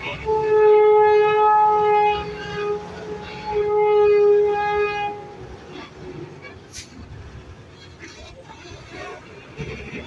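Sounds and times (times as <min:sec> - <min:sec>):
truck air horn blasts: 0:00.2 - 0:05.5.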